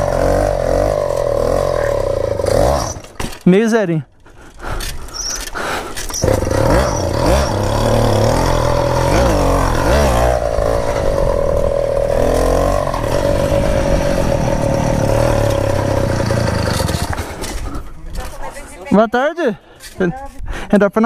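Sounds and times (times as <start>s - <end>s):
small two-stroke engine running: 0.0s - 3.2s, 6.1s - 17.7s.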